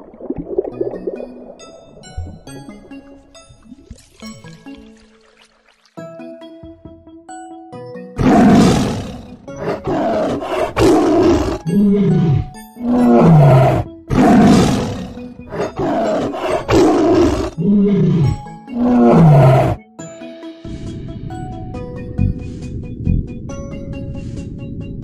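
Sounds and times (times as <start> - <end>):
tiger roaring and growling: 8.2 - 19.8.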